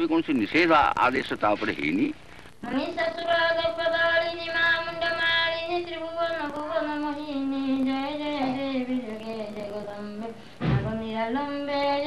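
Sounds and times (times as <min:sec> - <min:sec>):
woman singing slow melody: 0:02.6 - 0:12.0.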